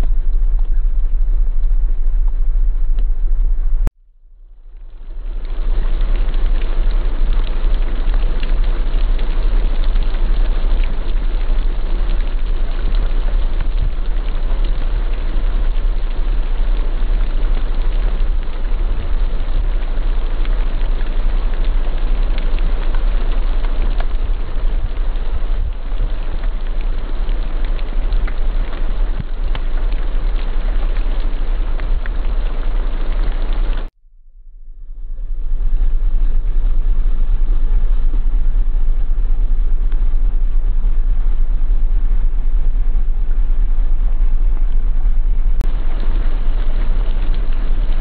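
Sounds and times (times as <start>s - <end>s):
steady rain: 0.0s - 3.6s, 4.6s - 33.9s, 35.2s - 48.0s
low rumble: 0.0s - 48.0s.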